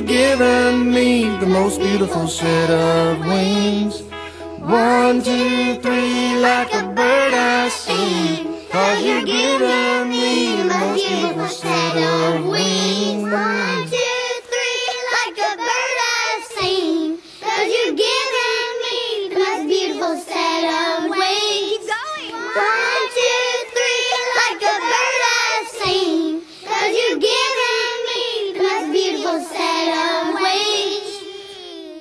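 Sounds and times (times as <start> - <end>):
light backing music: 0.0 - 14.2
high voice singing: 0.0 - 17.2.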